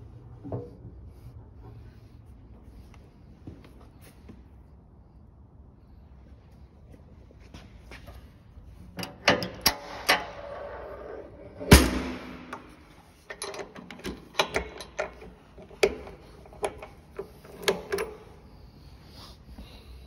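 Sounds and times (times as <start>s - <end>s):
irregular clicks and knocks: 11.7s - 18.2s.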